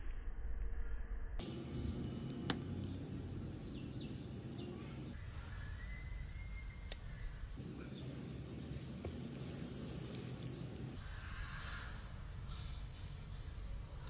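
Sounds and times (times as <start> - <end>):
outdoor background noise: 0.0 - 14.0
high bird chirps: 1.4 - 11.0.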